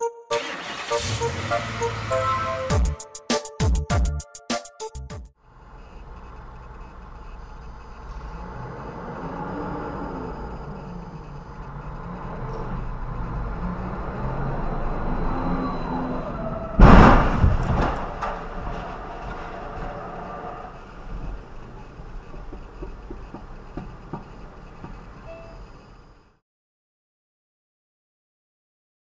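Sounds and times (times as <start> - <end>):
traffic hum: 0.4 - 2.9, 5.5 - 26.3
loud crash bang: 16.8 - 19.9.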